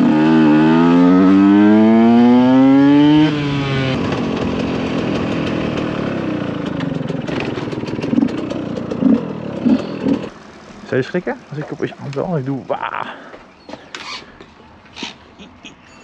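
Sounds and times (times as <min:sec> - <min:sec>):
two-stroke motorcycle accelerating: 0:00.0 - 0:12.8.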